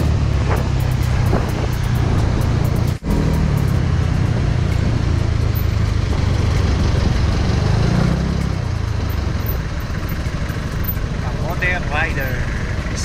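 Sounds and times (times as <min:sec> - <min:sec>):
wind rumble on microphone: 0:00.0 - 0:10.2
city traffic: 0:00.0 - 0:13.0
scooter engine running: 0:00.0 - 0:13.0.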